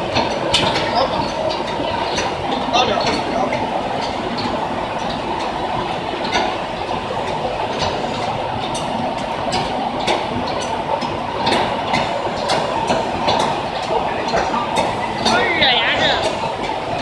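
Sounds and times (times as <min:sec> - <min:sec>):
machine clattering: 0:00.0 - 0:17.0.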